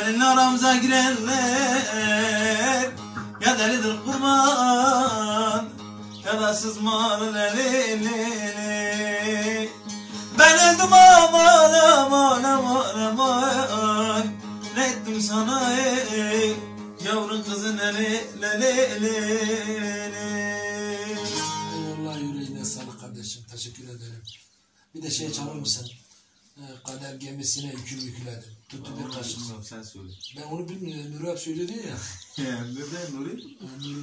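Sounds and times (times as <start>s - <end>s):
man singing folk song: 0.0s - 22.9s
plucked and strummed lutes: 0.0s - 22.9s.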